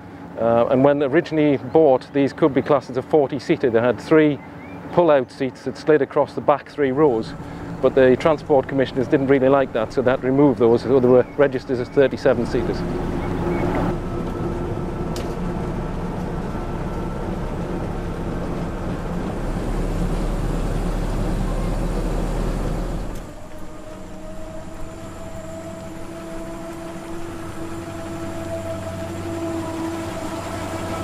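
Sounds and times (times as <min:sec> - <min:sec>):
bus engine running: 0:05.7 - 0:31.0
whine rising in pitch: 0:06.9 - 0:31.0.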